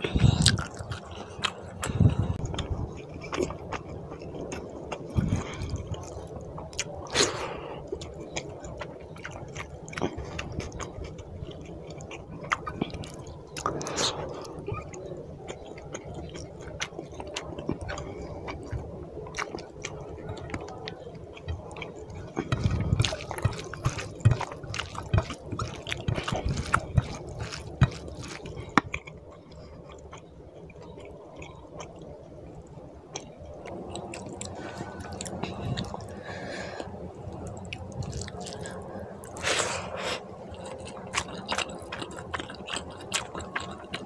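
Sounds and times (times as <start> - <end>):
close chewing: 0.0 - 44.0
hand squelching rice and curry: 22.5 - 28.6.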